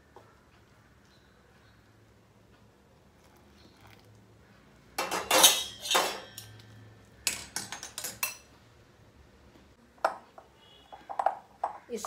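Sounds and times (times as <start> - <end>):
spoon clinking on glass: 5.0 - 6.6.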